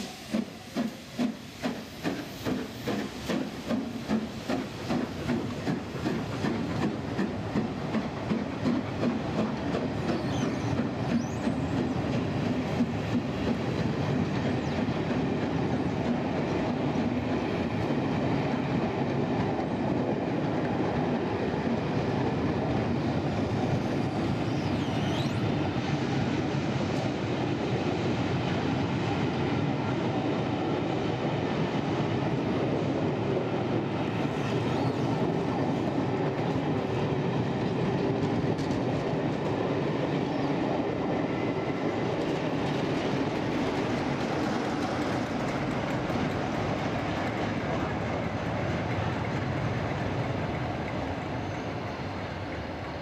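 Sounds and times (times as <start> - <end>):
steam locomotive exhaust beats: 0.0 - 19.9
train wheels on rails: 0.0 - 53.0.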